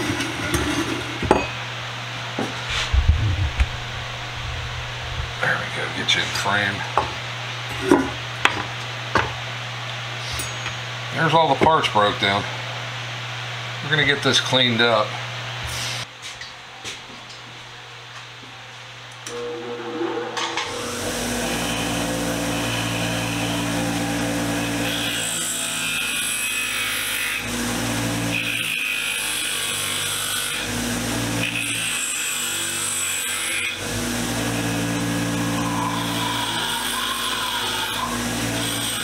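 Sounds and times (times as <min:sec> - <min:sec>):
bench grinder running: 0:02.6 - 0:05.9, 0:19.3 - 0:39.0
wire wheel scratching metal: 0:19.3 - 0:23.8.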